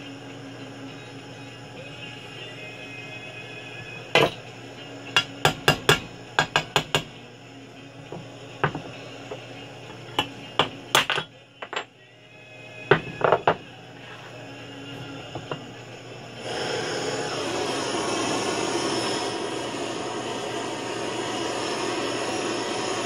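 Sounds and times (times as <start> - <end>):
metal parts knocking on wood: 12.9 - 13.6.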